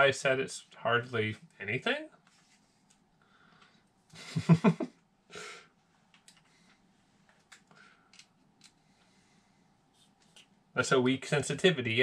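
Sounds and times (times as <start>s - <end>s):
breath: 2.5s - 3.9s, 7.7s - 8.2s, 8.8s - 9.8s.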